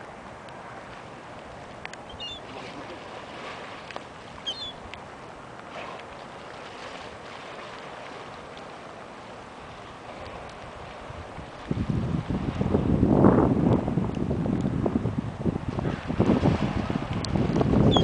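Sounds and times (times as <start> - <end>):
gulls calling: 2.0 - 3.2, 4.3 - 4.9.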